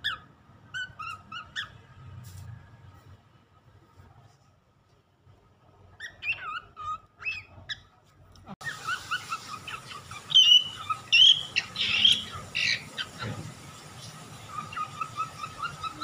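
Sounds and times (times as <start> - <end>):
cockatiel whistling and chirping: 0.0 - 1.7, 6.0 - 7.9, 8.6 - 13.4, 14.0 - 16.0.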